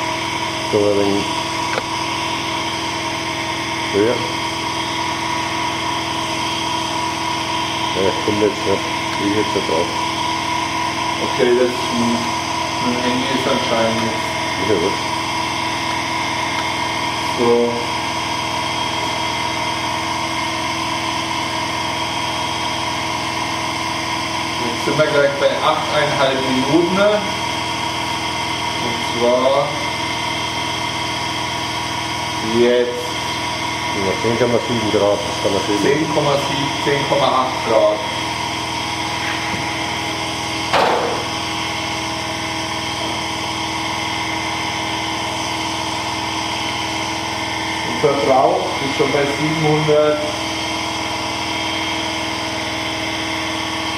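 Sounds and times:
electric motor humming: 0.0s - 53.9s
short sharp knock: 40.7s - 41.3s.

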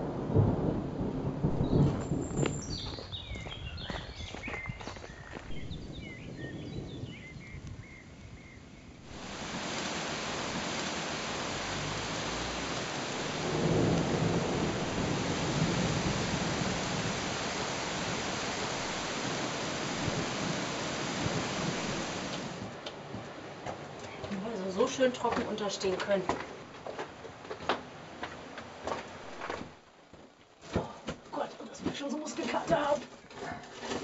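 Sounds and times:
thunder rumbling: 0.0s - 22.8s
heavy rain hissing: 5.3s - 22.8s.

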